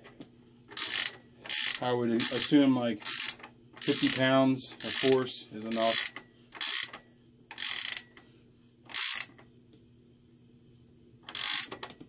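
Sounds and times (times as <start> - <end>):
ratchet wrench clicking: 0.7 - 8.1, 8.9 - 9.4, 11.2 - 12.0.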